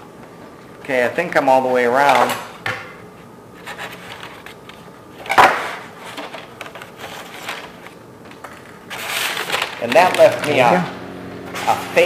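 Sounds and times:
paper rustling: 3.6s - 4.8s, 8.9s - 10.7s.

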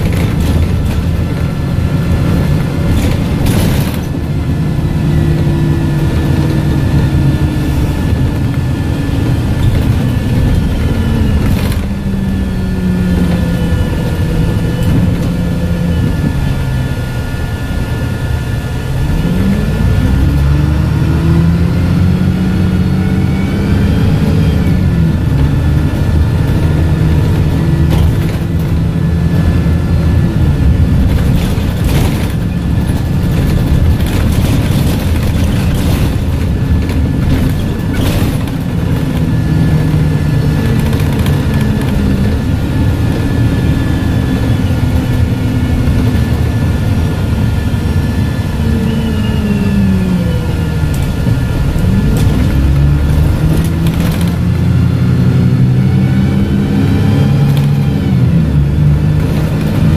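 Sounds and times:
knocks and rattles: 0.0s - 4.4s, 9.4s - 12.1s, 24.2s - 42.6s, 50.9s - 54.8s, 59.0s - 59.9s
bus diesel engine: 0.0s - 59.9s
gearbox whine: 0.0s - 59.9s.

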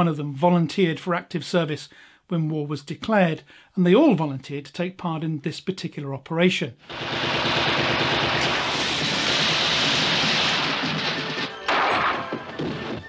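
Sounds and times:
loud crashing din: 6.9s - 13.0s
film music: 10.6s - 13.0s.

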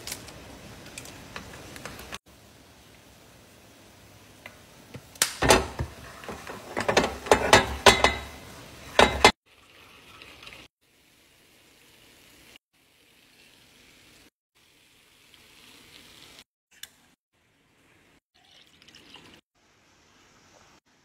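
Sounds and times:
noodles sizzling in pan: 0.0s - 16.5s.

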